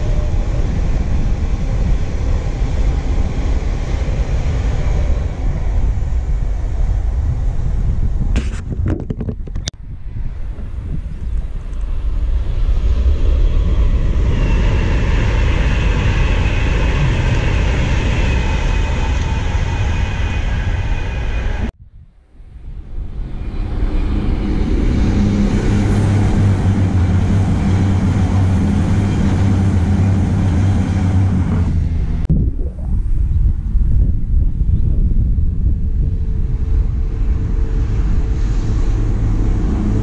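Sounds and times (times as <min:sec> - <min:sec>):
train passing with rushing track noise: 0:00.0 - 0:08.3, 0:11.6 - 0:21.8, 0:22.6 - 0:32.2, 0:36.2 - 0:40.0
high whine of electric train: 0:00.0 - 0:08.4, 0:09.8 - 0:32.2, 0:35.6 - 0:40.0
low train hum: 0:00.0 - 0:08.7, 0:09.5 - 0:40.0.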